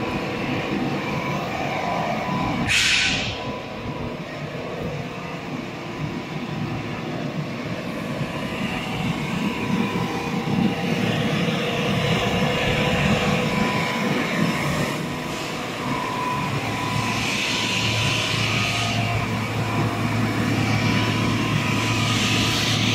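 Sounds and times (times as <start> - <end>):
factory machinery din: 0.0 - 22.9
hiss: 2.6 - 3.5.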